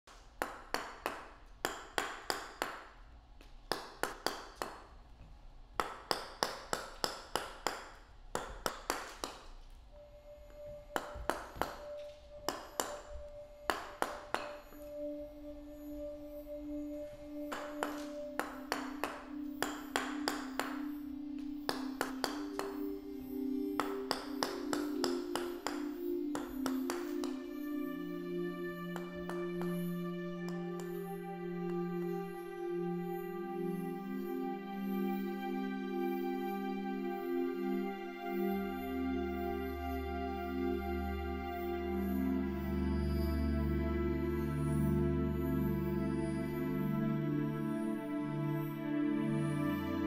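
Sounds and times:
held musical tones: 9.7s - 50.0s.

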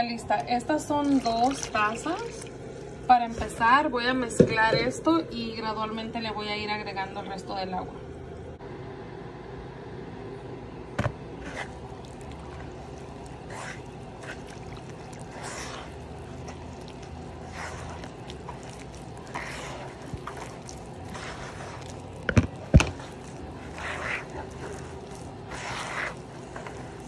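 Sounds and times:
hand squishing wet dough: 0.3s - 3.1s, 11.4s - 27.0s.

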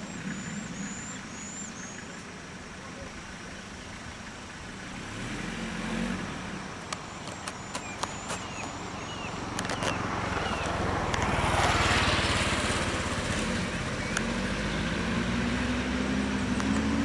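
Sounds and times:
bird chirps: 0.0s - 2.2s, 7.0s - 10.8s
vehicle engine idling: 0.0s - 14.8s
sharp clicks: 6.9s - 8.8s.

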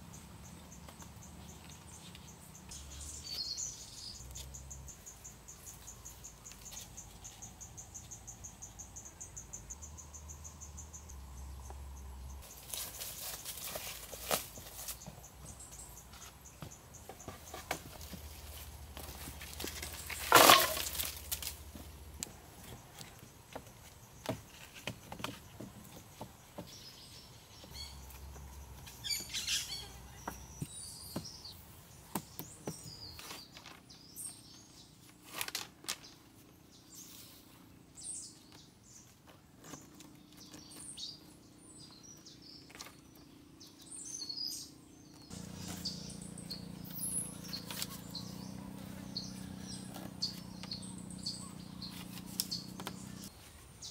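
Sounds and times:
birds chirping: 0.0s - 35.2s, 36.0s - 53.9s
wooden poles clattering down: 19.0s - 21.7s.

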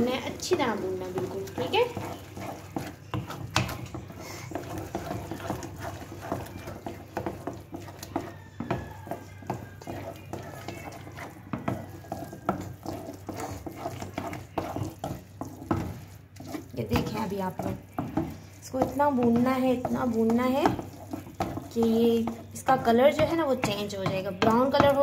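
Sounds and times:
metal spoon scraping a pan: 0.0s - 25.0s.

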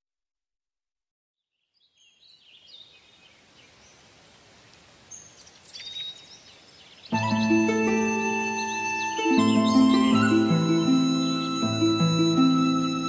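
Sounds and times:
faint steady hiss: 2.0s - 13.0s
synthesizer background music: 7.1s - 13.0s.

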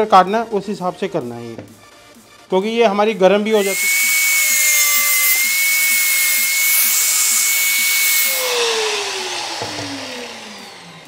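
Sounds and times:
angle grinder cutting metal: 3.5s - 11.0s.

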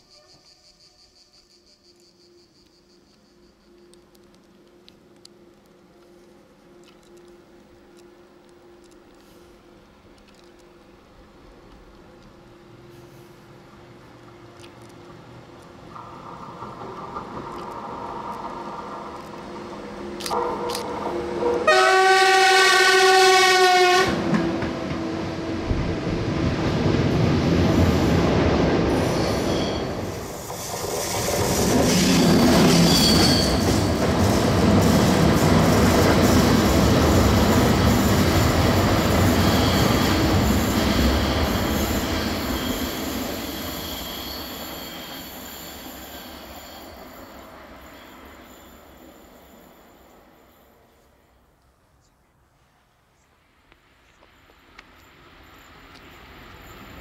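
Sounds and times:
train wheels rumbling: 4.2s - 50.7s
train horn blast: 20.0s - 26.1s.

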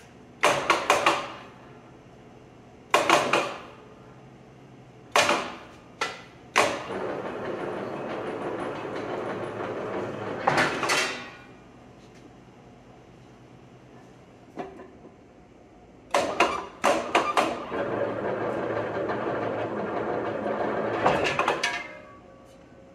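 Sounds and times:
plate roller running: 6.6s - 11.4s, 16.2s - 22.2s.

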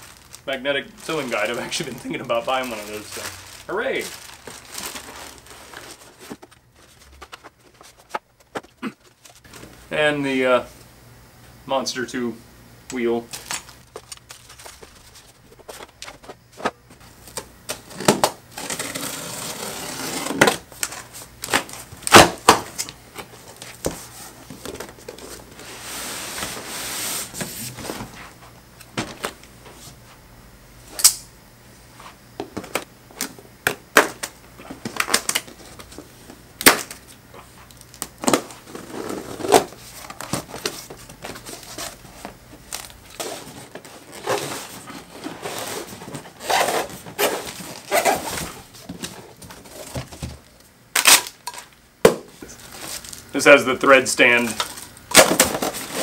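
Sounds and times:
cardboard rustling and scraping: 0.0s - 9.8s, 13.4s - 30.0s, 37.4s - 50.6s, 52.4s - 53.3s, 54.2s - 56.0s.

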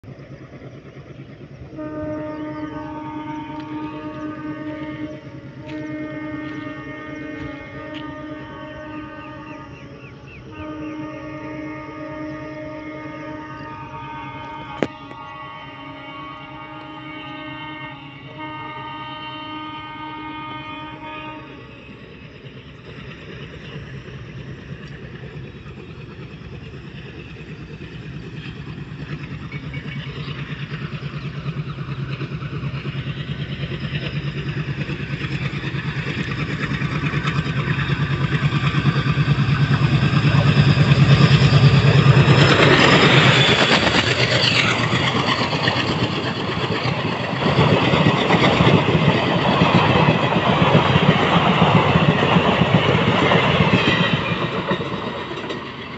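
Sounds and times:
diesel locomotive chugging: 0.0s - 55.9s
passenger coaches rumbling: 0.0s - 55.9s
train horn: 1.7s - 21.8s.

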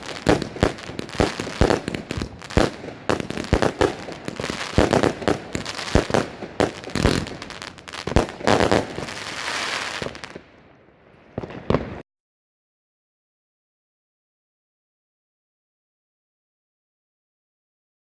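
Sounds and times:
firework shells bursting: 0.0s - 10.4s.

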